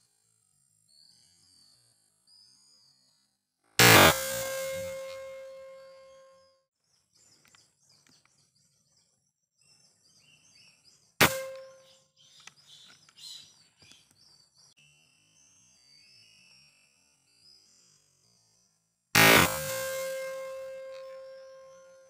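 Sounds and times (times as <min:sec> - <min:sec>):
air rifle shot: 0:03.8 - 0:05.4, 0:11.2 - 0:11.8, 0:19.2 - 0:20.8.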